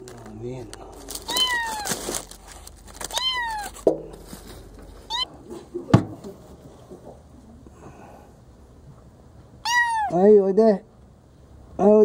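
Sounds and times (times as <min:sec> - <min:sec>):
kitten meowing: 0:01.2 - 0:02.0, 0:03.1 - 0:03.8, 0:05.1 - 0:05.3, 0:09.6 - 0:10.2.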